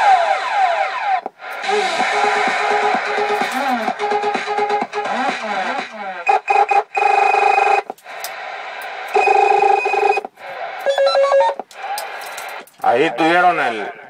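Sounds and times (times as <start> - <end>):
radio hiss: 1.3 - 4.0, 7.9 - 9.2, 9.8 - 14.0
radio call tones: 1.6 - 4.1, 9.1 - 12.2.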